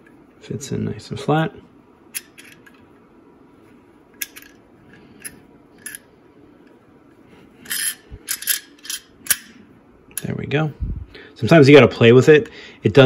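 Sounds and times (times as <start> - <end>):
small steel parts clicking: 4.2 - 6.1, 7.6 - 9.5
metal scrape and rattle: 7.6 - 9.1.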